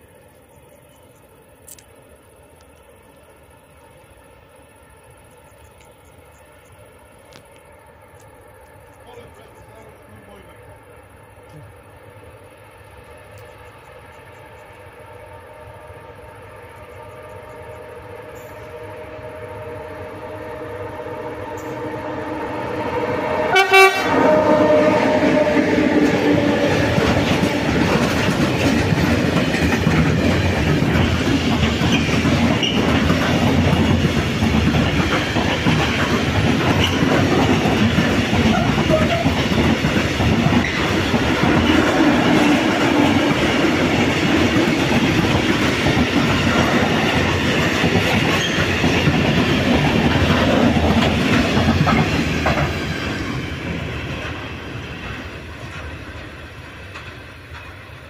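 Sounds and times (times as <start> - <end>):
train wheels on rails: 0.0 - 58.0
train horn: 15.5 - 27.0, 38.4 - 39.4.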